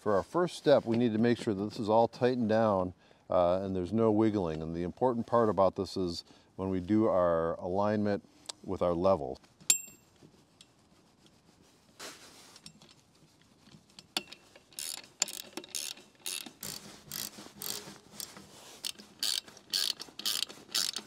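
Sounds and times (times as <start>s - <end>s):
faint scrape: 10.1s - 12.7s
ratcheting wrench clicking: 14.0s - 21.0s.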